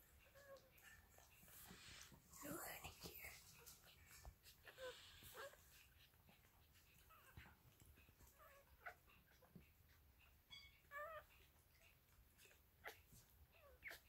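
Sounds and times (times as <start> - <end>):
puppies squeaking and whimpering: 4.5 - 14.0.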